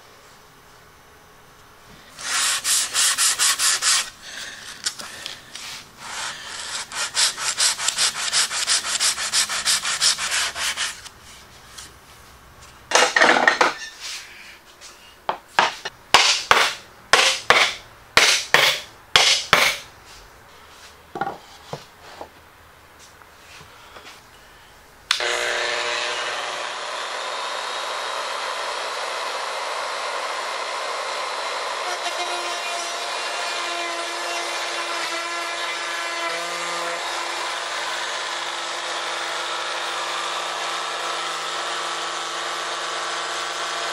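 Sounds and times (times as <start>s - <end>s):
sandpaper rubbing on wood: 2.2s - 4.2s, 5.6s - 11.5s.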